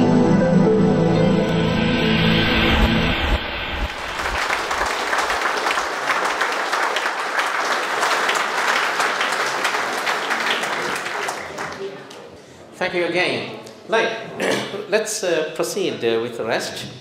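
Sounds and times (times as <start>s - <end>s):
intro music: 0.0s - 5.8s
audience clapping: 3.9s - 12.3s.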